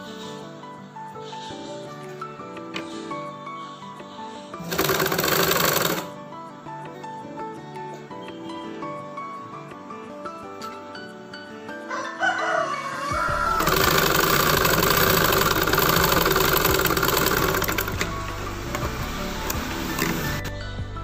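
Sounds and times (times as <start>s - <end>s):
soft background music: 0.0s - 21.0s
sewing machine stitching: 4.6s - 6.1s, 13.6s - 20.5s.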